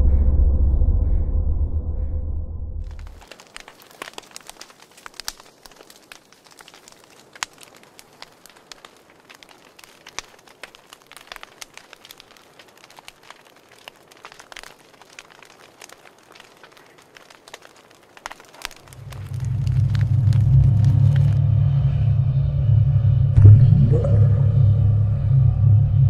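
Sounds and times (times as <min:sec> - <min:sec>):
wood fire crackling: 0:02.8 - 0:22.0, 0:23.4 - 0:24.9.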